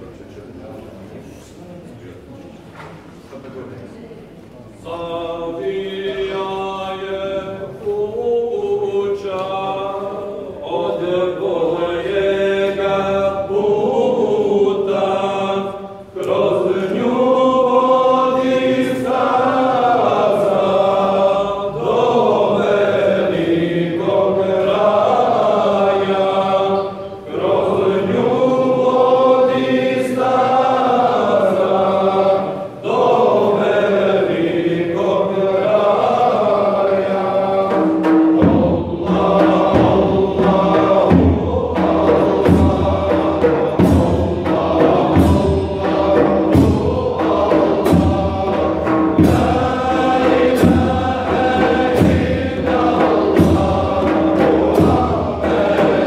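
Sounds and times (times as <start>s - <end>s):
men chanting together: 4.8s - 56.0s.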